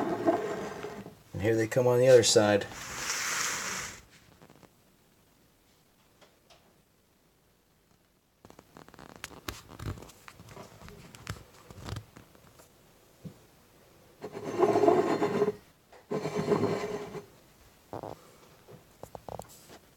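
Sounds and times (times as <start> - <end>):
ceramic mug scraping countertop: 0.0 - 1.2, 2.8 - 4.0, 14.2 - 17.3.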